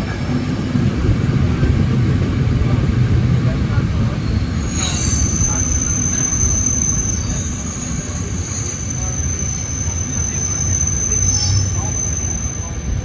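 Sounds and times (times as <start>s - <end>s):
train carriages rumbling: 0.0s - 13.0s
high thin squeal: 4.2s - 13.0s.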